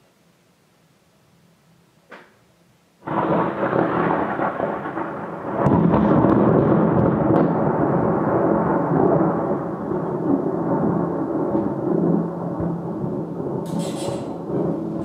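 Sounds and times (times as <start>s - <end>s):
thunderclap rumbling: 3.0s - 15.0s.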